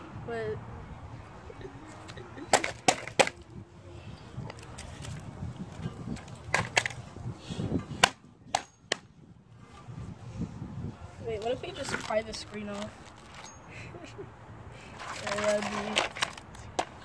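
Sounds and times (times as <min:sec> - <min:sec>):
plastic casing cracking: 0:15.2 - 0:16.9.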